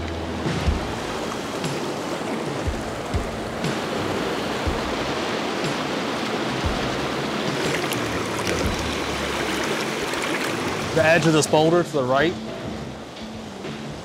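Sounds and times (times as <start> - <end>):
low bumps: 0.0 - 1.9, 2.6 - 5.1, 7.7 - 9.6
stream rushing over rocks: 0.0 - 14.0.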